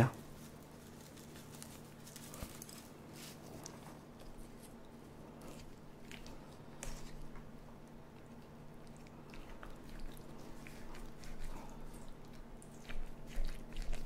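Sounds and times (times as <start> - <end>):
spice flakes pattering: 0.2 - 8.9.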